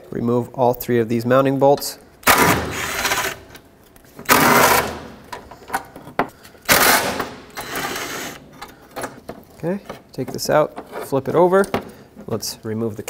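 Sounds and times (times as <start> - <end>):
impact driver rattling bursts: 2.2 - 3.5, 4.3 - 5.2, 6.7 - 8.4.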